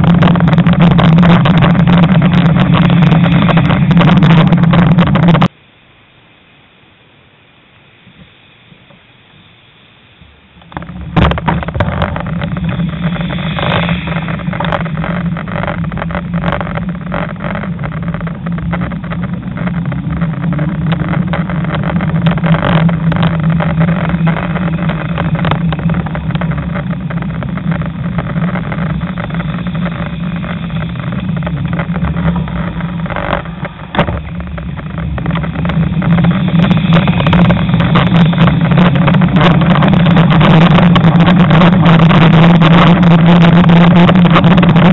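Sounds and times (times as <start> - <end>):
bicycle riding drone: 0.0 - 5.8, 7.6 - 44.9
knocks and rattles: 10.6 - 44.9.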